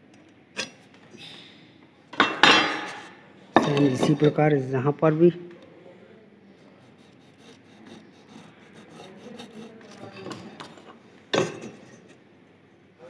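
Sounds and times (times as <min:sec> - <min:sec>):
ballpoint pen scratching on wood: 0:06.8 - 0:10.8.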